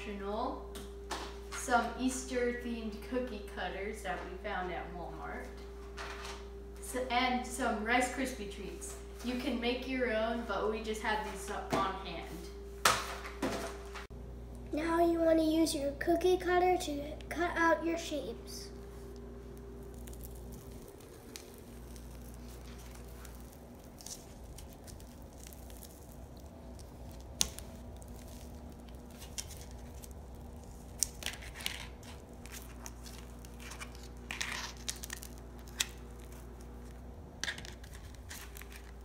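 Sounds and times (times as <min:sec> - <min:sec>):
steady low hum: 0:00.0 - 0:39.0
soft crunches and tears: 0:19.1 - 0:39.0.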